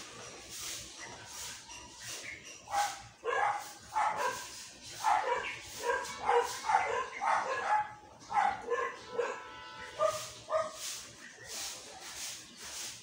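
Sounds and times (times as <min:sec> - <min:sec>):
dog yapping barks: 0:02.7 - 0:10.8.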